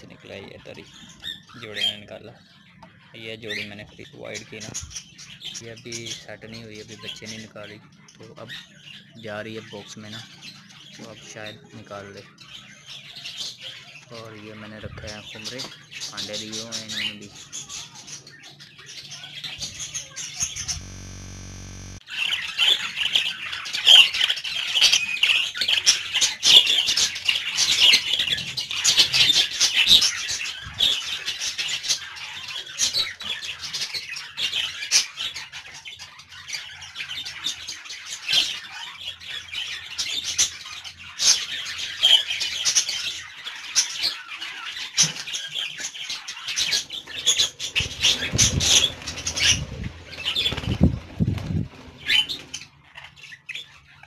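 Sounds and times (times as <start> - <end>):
budgerigars chattering and chirping: 0.0 - 54.0.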